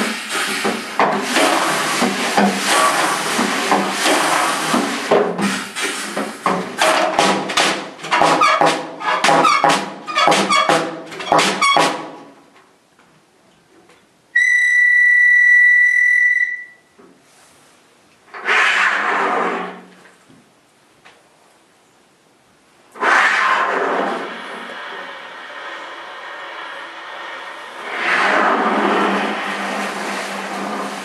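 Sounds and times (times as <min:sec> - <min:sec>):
hissing burst: 0:00.0 - 0:06.5, 0:23.0 - 0:31.0
rapid struck and scraped sounds: 0:00.0 - 0:12.2, 0:23.0 - 0:31.0
high whistle-like saxophone note: 0:14.4 - 0:16.9.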